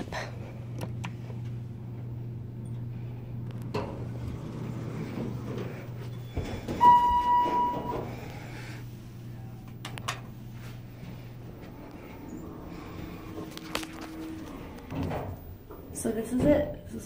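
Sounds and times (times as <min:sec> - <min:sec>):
steady low hum: 0:00.0 - 0:17.0
elevator chime tone: 0:06.2 - 0:08.2.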